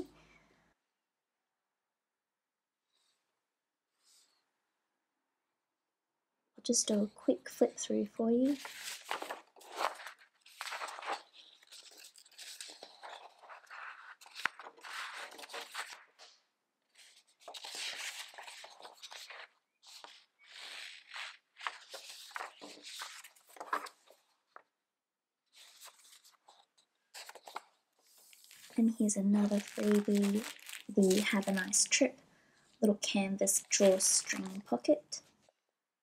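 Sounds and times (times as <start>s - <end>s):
paper pages being flipped: 8.5s - 24.7s, 25.5s - 32.0s.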